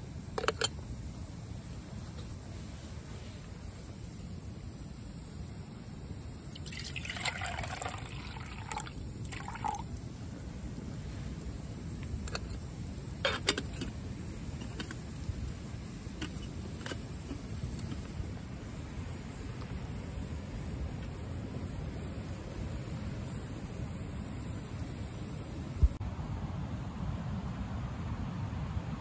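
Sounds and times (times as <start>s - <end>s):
water poured into metal pot: 6.5s - 9.9s.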